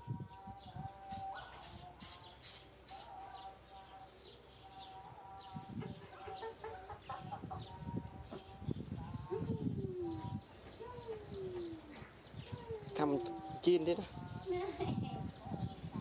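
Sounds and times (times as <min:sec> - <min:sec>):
small birds chirping: 0:00.0 - 0:16.0
chickens clucking: 0:04.8 - 0:16.0.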